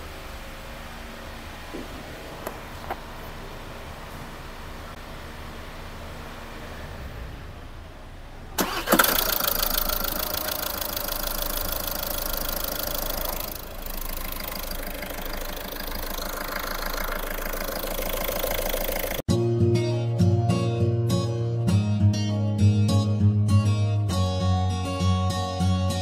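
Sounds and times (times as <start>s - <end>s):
diesel engine cranking and idling: 0.0s - 19.3s.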